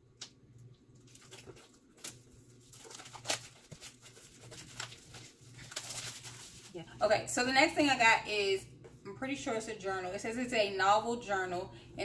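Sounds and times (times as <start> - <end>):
packaging crackling and clicking: 1.0 - 6.6.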